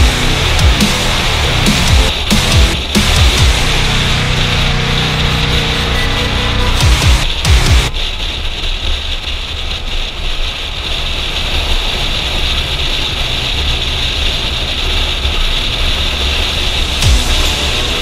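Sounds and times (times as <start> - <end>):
motorcycle engine cruising: 0.0 - 7.9, 14.6 - 18.0.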